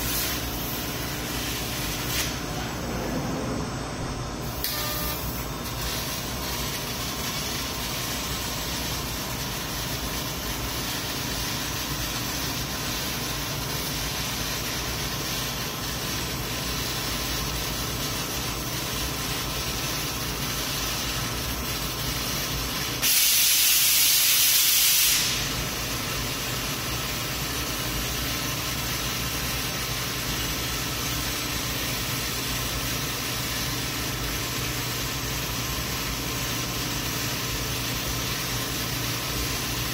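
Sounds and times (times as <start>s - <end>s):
laser cutting machine hissing: 0.0s - 39.9s
louder higher hiss: 23.0s - 25.6s.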